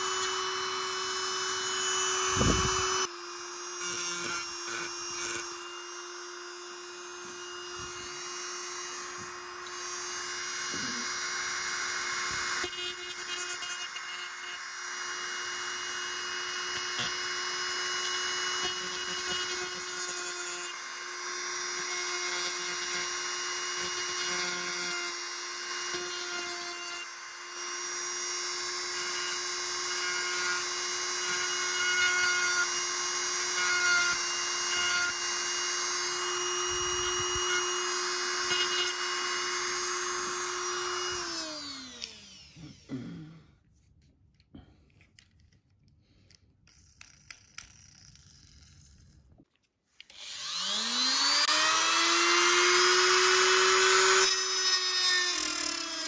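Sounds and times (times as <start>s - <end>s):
motor whine: 0.0s - 21.3s, 27.0s - 43.2s
rotary tool grinding steel: 0.0s - 42.9s, 46.2s - 56.0s.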